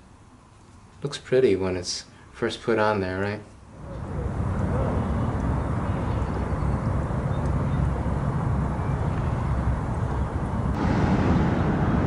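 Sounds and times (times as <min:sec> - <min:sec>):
wind buffeting microphone: 0:03.8 - 0:12.0.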